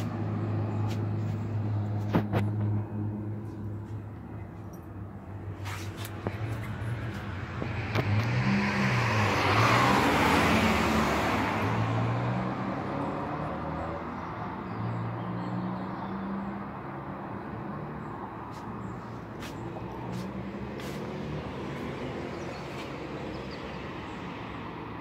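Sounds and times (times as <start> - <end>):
traffic noise: 0.0 - 25.0
vehicle passing by: 5.3 - 25.0.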